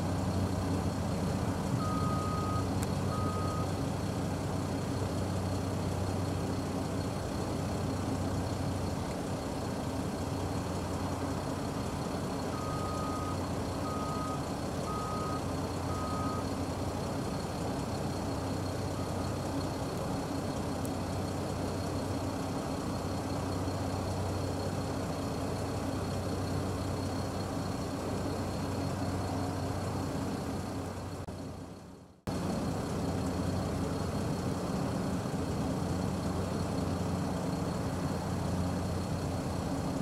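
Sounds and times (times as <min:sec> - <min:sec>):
helicopter engine and rotor running: 0:00.0 - 0:40.0
vehicle reversing beeper: 0:01.7 - 0:03.8, 0:12.4 - 0:16.6.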